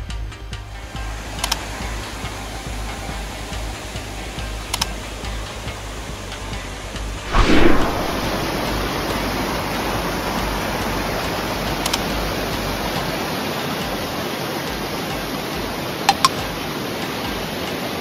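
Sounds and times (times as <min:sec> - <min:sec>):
stream rushing over rocks: 0:07.3 - 0:18.0.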